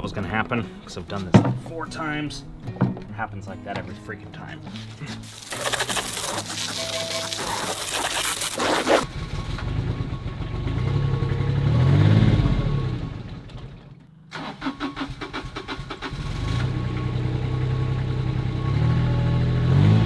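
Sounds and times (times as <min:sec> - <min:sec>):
diesel mower engine revving: 0:05.2 - 0:20.0
engine cranking: 0:13.1 - 0:16.7.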